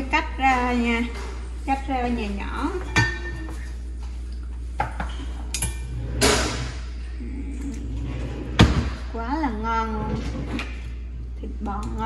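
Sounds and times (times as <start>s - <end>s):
steady low hum: 0.0s - 12.0s
utensils clinking on dishes: 2.7s - 3.8s, 4.8s - 6.4s.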